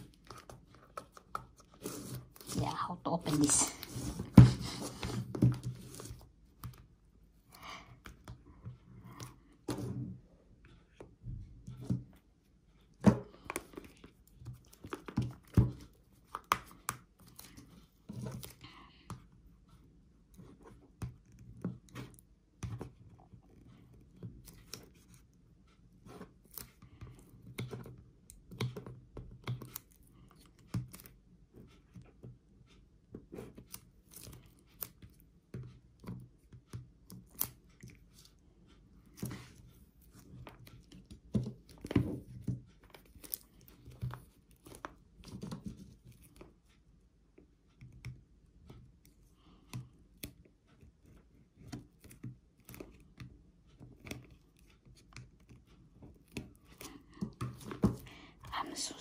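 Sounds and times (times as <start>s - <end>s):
fingernails scratching cardboard: 0.2s - 2.6s.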